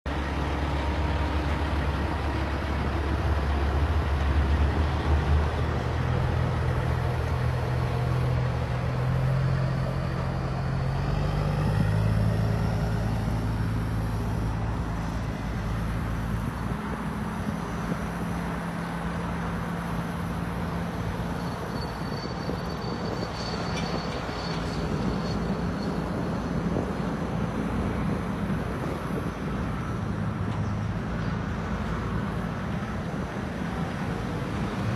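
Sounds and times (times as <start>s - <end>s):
truck diesel engine under load: 0.1s - 34.9s
thin high whistle: 21.3s - 26.1s.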